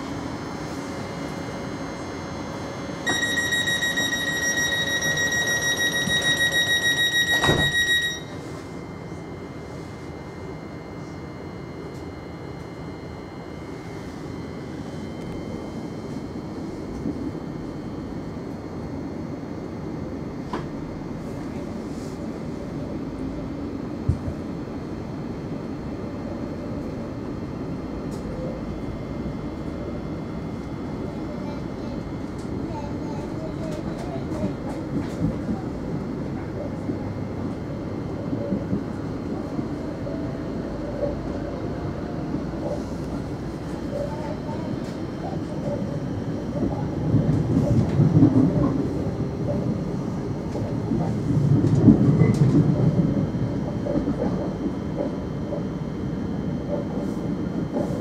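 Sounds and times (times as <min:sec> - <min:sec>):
train interior low rumble: 0:00.0 - 0:58.0
high electronic warning tone: 0:03.0 - 0:08.7
sliding doors closing with thump: 0:07.3 - 0:07.9.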